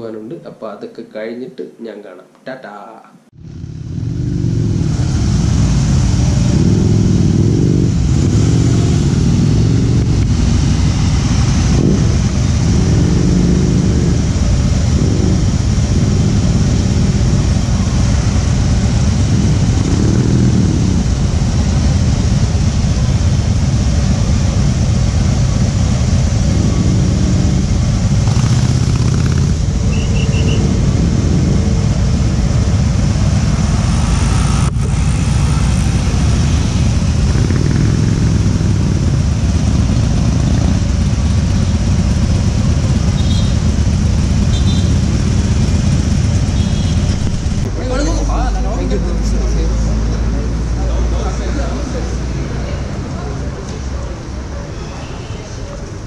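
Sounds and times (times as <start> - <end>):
group of motorcycles rumbling: 3.3 - 56.0
motorcycle engines revving: 3.3 - 56.0.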